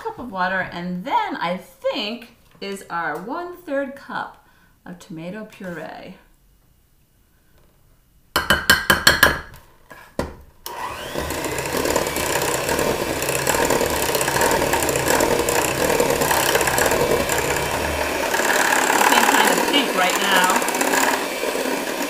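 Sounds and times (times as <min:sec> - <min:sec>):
electric hand mixer running: 0:10.7 - 0:22.0.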